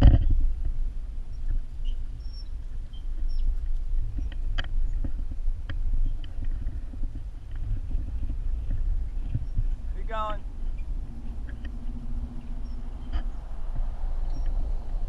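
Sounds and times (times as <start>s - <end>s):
bicycle tyre rumble: 0.0s - 15.0s
bike clicks and rattles: 0.0s - 15.0s
wind buffeting microphone: 0.0s - 15.0s.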